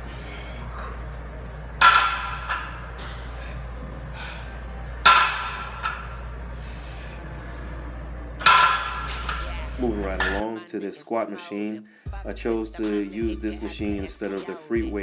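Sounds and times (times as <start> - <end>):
weight plates clanking down: 1.8 - 3.4, 5.0 - 6.1, 8.4 - 10.5.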